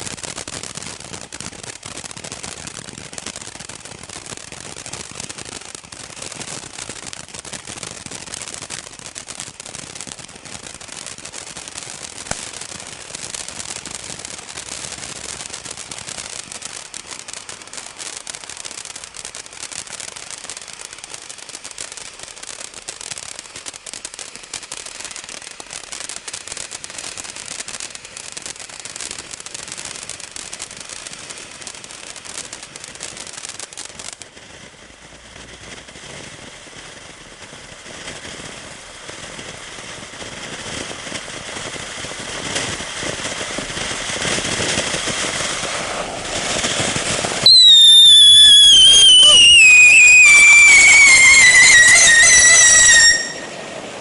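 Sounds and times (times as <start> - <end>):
firework hissing: 0.0 - 54.0
firework sparks crackling: 0.0 - 54.0
firework whistle falling in pitch: 47.4 - 53.8.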